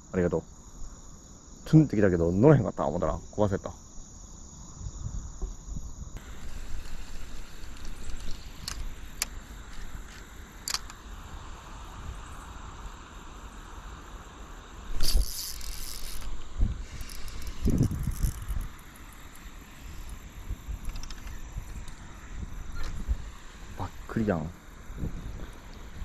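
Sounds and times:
wind rumble on microphone: 4.5 - 26.0
fishing reel clicks: 6.2 - 11.0, 14.9 - 20.2
short rasping burst: 14.9 - 19.0.

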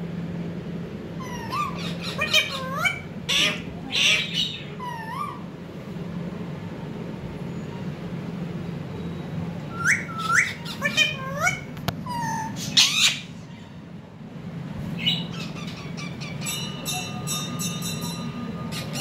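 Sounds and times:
parakeets squawking: 1.2 - 5.5, 9.7 - 13.8, 14.8 - 19.0.

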